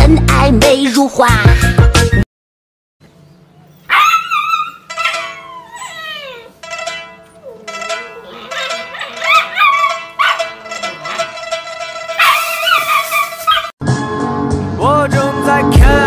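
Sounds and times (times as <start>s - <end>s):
background music: 0.0s - 2.2s, 6.6s - 16.0s
puppy howling: 3.8s - 11.4s, 12.1s - 13.7s.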